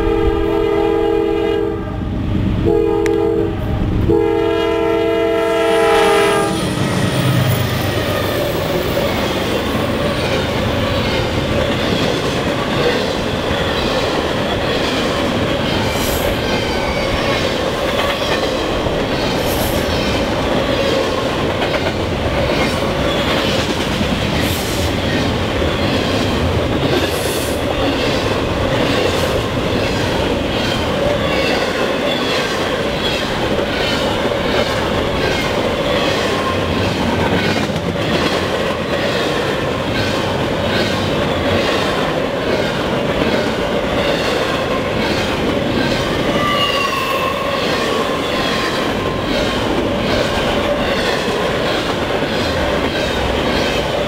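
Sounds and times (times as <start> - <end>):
locomotive horn blasts: 0.0 - 6.9
train wheels clattering over rail: 6.7 - 54.0.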